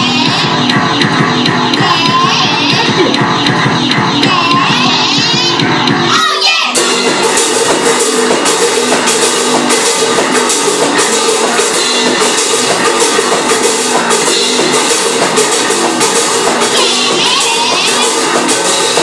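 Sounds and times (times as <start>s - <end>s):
drum kit beat: 0.0s - 19.0s
cymbal strikes: 6.7s - 19.0s.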